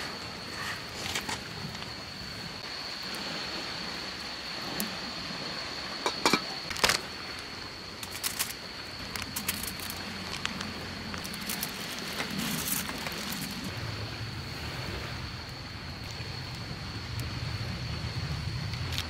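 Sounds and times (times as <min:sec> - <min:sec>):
steady hiss with high tone: 0:00.0 - 0:19.0
foil crinkling: 0:11.2 - 0:13.7.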